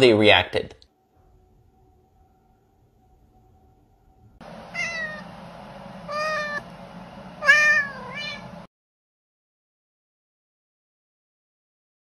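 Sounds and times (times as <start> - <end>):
faint steady tone: 0.9 - 7.3
cat meowing: 4.7 - 5.2, 6.1 - 6.6, 7.4 - 8.5.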